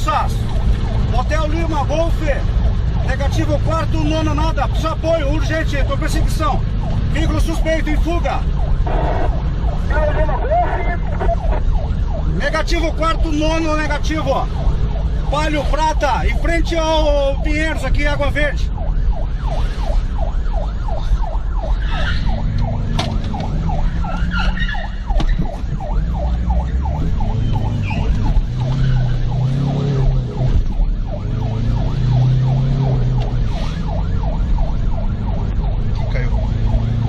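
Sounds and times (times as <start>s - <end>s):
police siren yelping: 0.0s - 37.0s
car engine revving: 25.9s - 37.0s.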